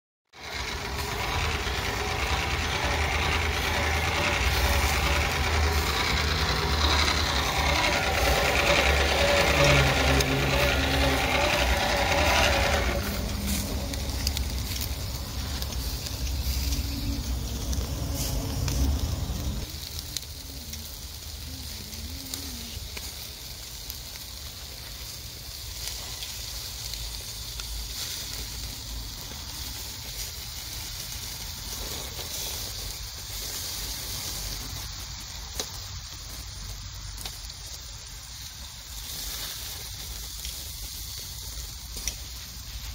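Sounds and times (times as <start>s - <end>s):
skewers sizzling over charcoal: 0.3s - 42.9s
hand-cranked blower whirring: 0.4s - 19.7s.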